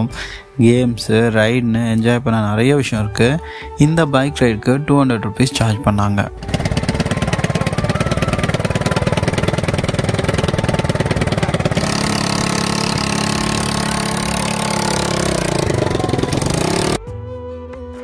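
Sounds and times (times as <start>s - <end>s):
quad bike engine idling: 6.4s - 17.0s.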